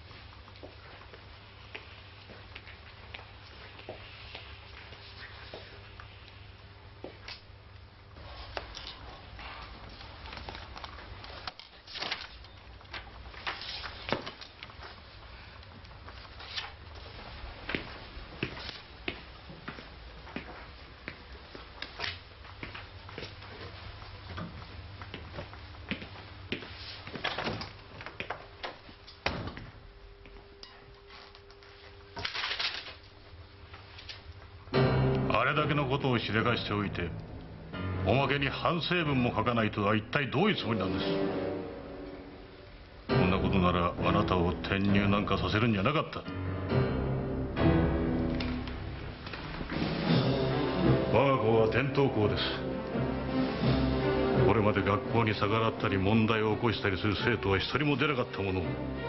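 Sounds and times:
paper rustling: 8.4 - 17.4, 31.1 - 33.2
low steady hum: 32.8 - 58.8.

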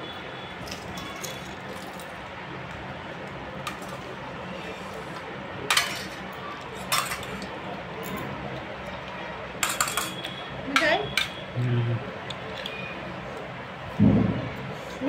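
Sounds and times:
steel spoon clinking on bowls: 5.7 - 6.2, 6.8 - 8.3, 9.6 - 11.4.

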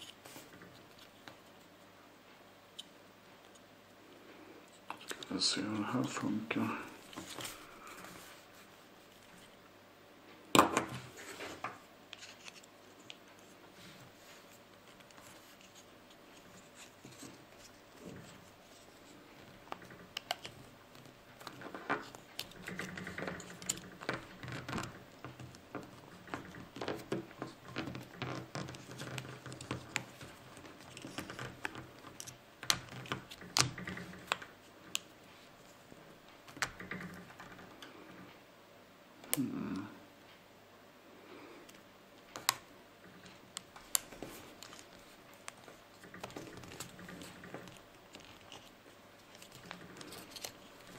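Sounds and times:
plastic scratching and clicking: 4.7 - 6.3, 14.3 - 38.0, 41.7 - 50.9.

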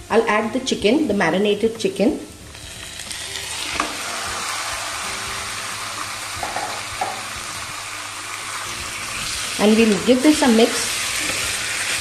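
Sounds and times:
chicken sizzling in hot oil: 2.3 - 12.0.

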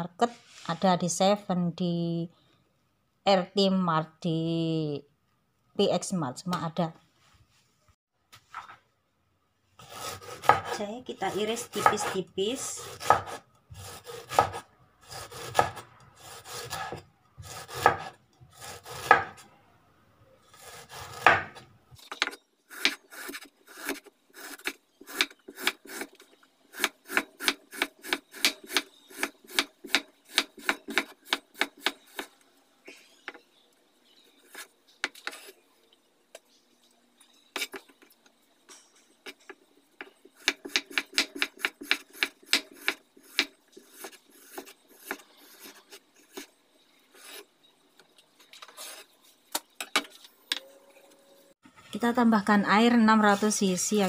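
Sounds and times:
knife cutting on wooden board: 9.8 - 12.2, 12.8 - 19.4, 20.6 - 21.6.

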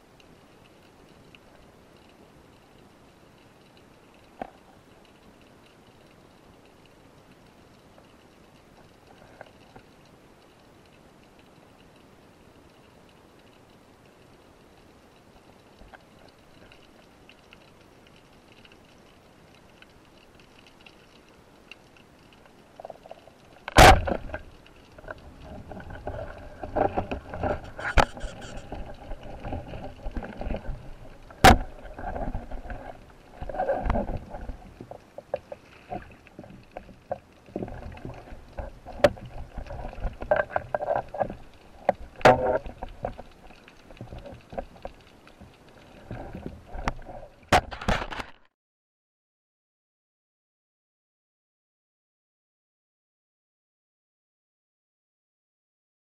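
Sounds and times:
churning water: 23.7 - 47.6.

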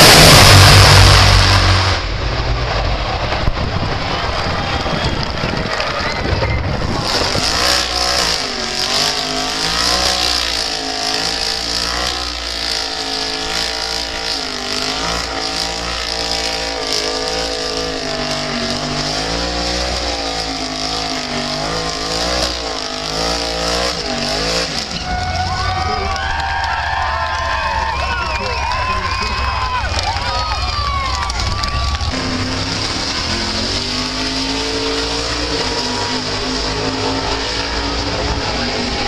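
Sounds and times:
car engine revving: 0.0 - 39.0
tyres spinning and squealing: 0.0 - 39.0.

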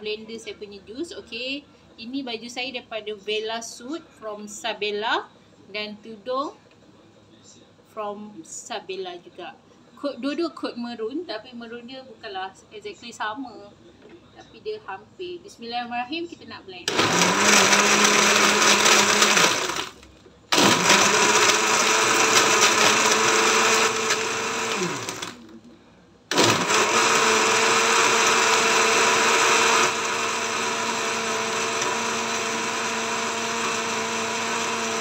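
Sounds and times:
blender crushing ice: 16.9 - 25.4, 26.3 - 35.0.

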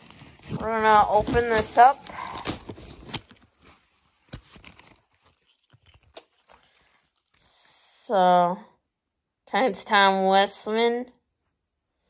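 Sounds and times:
plastic bag crinkling and tearing: 0.0 - 7.4.

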